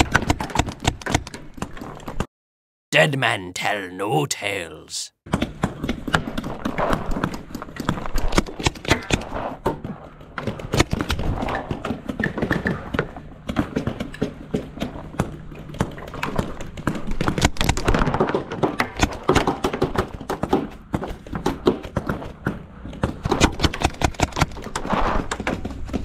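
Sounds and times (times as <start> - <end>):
paintball markers firing: 23.2 - 24.7.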